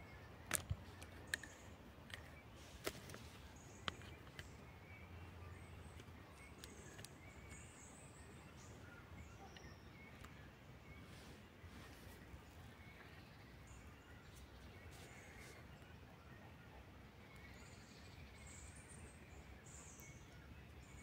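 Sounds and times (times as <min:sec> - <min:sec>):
sharp clicks and snaps: 0:00.4 - 0:04.5, 0:05.9 - 0:07.6.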